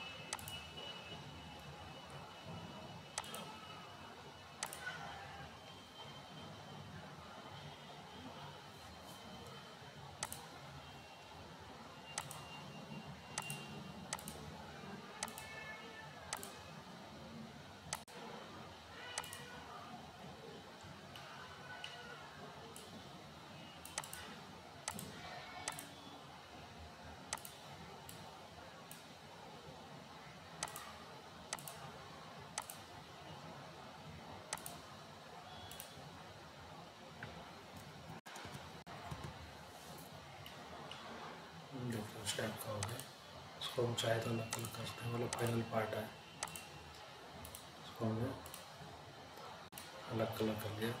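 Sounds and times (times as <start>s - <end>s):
computer mouse clicking: 0.3s - 0.6s, 3.1s - 3.6s, 4.6s - 5.0s, 10.2s - 10.5s, 12.1s - 12.6s, 13.3s - 14.5s, 15.2s - 15.6s, 16.3s - 16.6s, 17.9s - 18.1s, 19.0s - 19.6s, 23.8s - 26.0s, 27.3s - 28.2s, 30.6s - 31.9s, 32.5s - 32.9s, 34.5s - 34.9s, 35.5s - 36.0s, 42.7s - 43.1s, 44.4s - 45.7s, 46.4s - 47.7s, 48.4s - 48.7s.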